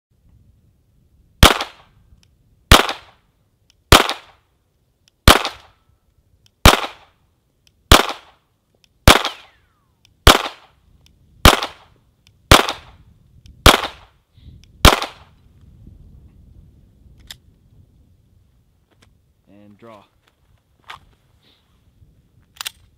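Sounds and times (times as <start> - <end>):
pistol shots: 1.4 - 1.9, 2.7 - 3.2, 3.9 - 4.4, 5.2 - 5.8, 6.6 - 7.1, 7.9 - 8.4, 9.0 - 9.6, 10.2 - 10.7, 11.4 - 11.9, 12.5 - 13.0, 13.6 - 14.1, 14.8 - 15.3.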